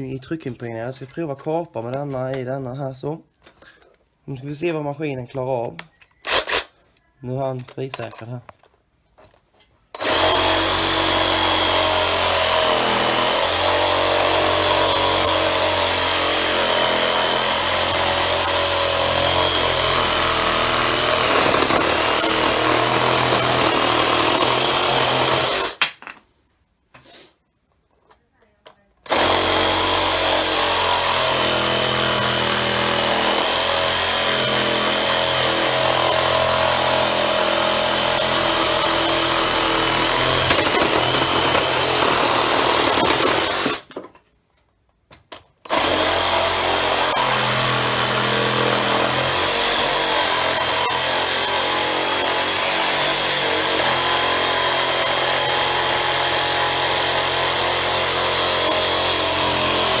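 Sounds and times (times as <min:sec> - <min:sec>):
reciprocating saw cutting wood: 0:10.0 - 0:25.8, 0:29.1 - 0:43.9, 0:45.7 - 1:00.0.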